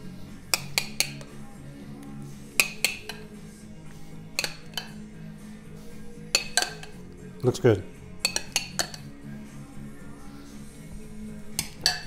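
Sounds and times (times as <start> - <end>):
quiet background music: 0.0 - 12.0
dishes and utensils clinking: 0.5 - 1.3, 2.6 - 3.4, 4.3 - 5.0, 6.2 - 7.1, 8.2 - 9.2, 11.5 - 12.0.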